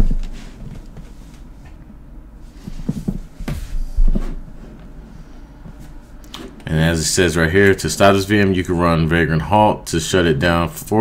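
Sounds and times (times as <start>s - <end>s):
dull thumps: 2.6s - 5.0s.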